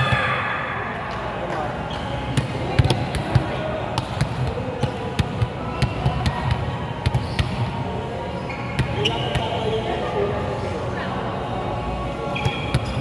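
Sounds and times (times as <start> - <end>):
volleyballs being struck and bouncing: 1.0 - 7.6.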